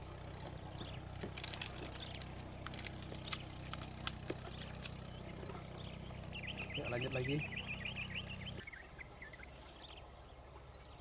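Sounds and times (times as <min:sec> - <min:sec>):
faint bird chirps: 0:04.2 - 0:11.0.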